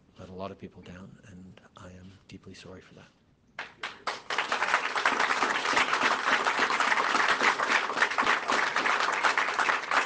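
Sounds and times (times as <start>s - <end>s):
people clapping: 3.6s - 10.0s.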